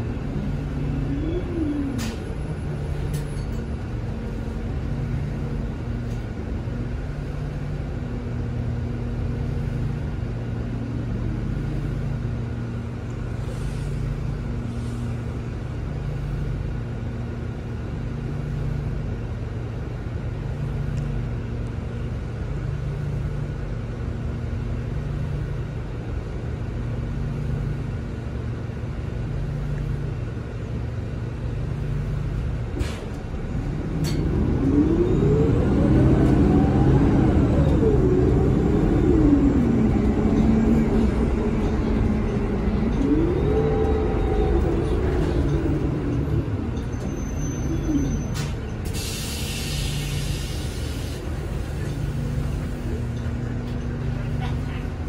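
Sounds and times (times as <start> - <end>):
bus engine rumble: 0.0 - 55.0
rising transmission whine: 31.5 - 55.0.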